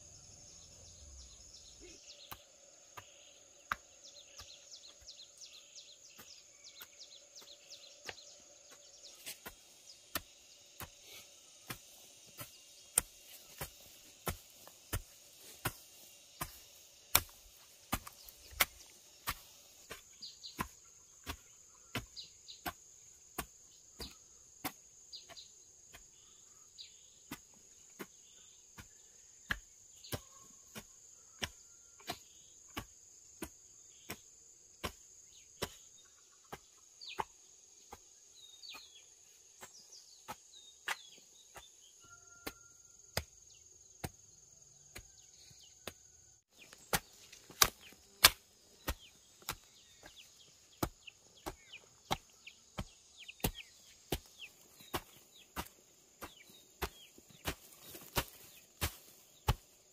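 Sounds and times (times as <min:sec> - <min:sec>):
high insect drone: 0:00.0 - 0:20.4
bird chirping: 0:00.0 - 0:32.7, 0:35.1 - 0:59.9.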